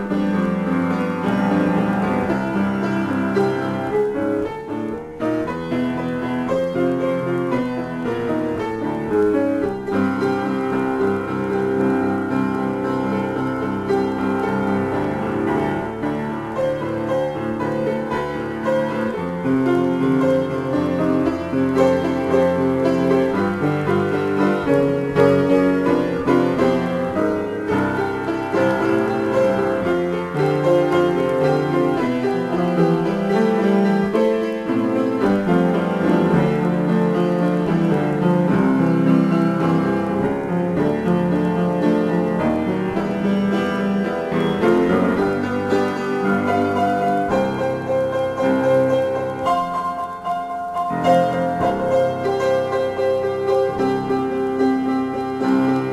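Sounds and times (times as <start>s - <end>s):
piano improvisation: 0.0s - 55.9s.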